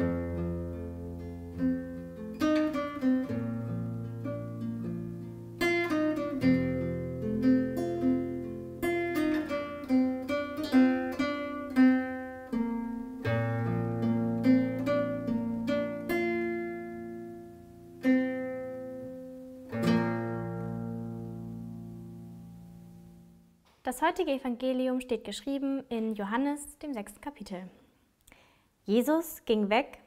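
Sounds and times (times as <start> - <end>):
fingerstyle classical guitar: 0.0 - 23.6.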